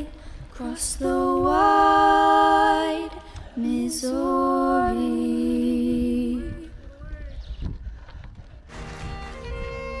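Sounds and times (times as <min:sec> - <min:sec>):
a cappella voices singing: 0:00.0 - 0:06.8.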